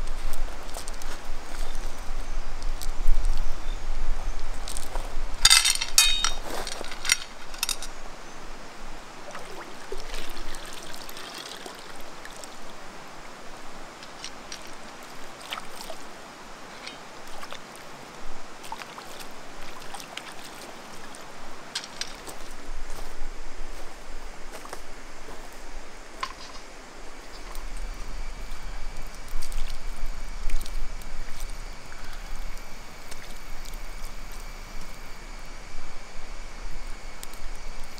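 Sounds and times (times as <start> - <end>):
stream rushing: 5.2 - 37.2
small stones clicking: 21.8 - 22.3.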